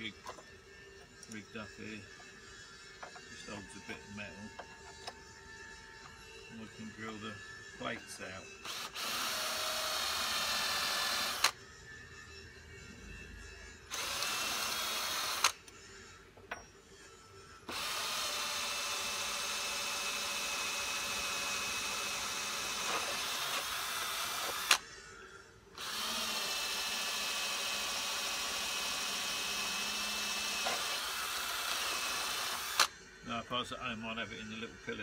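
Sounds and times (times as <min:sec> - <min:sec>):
cordless drill boring metal: 0:01.1 - 0:11.5, 0:13.9 - 0:15.8, 0:17.7 - 0:24.9, 0:25.8 - 0:32.9
drill click: 0:08.6 - 0:11.5, 0:13.9 - 0:15.6, 0:17.7 - 0:24.8, 0:25.8 - 0:32.9.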